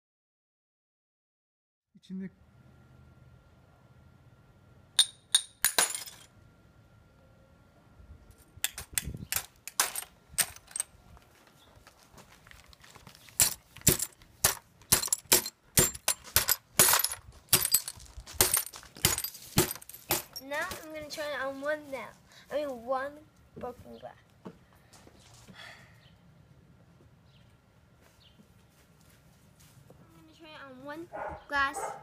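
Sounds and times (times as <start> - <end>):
hammer smashing glass: 13.4 - 20.4.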